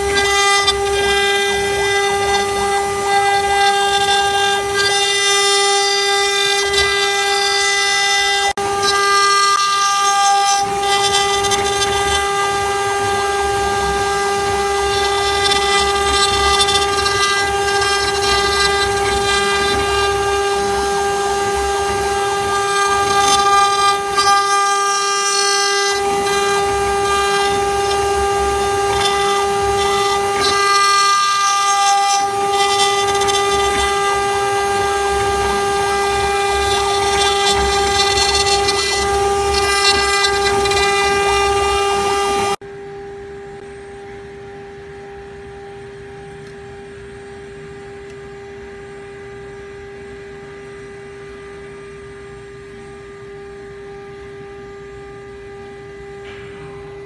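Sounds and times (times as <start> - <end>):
bit cutting wood: 0.0 - 42.6
router spindle whining: 0.0 - 57.0.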